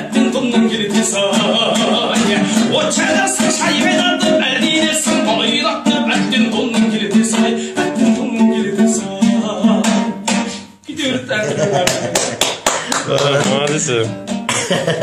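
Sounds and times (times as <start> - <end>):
strummed lute: 0.0 - 11.3, 13.2 - 14.6
man singing: 0.0 - 11.9.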